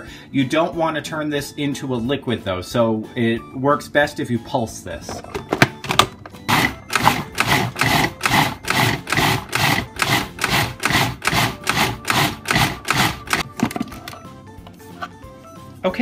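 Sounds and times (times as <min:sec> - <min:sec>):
food processor pulsing: 0:06.5 - 0:13.4.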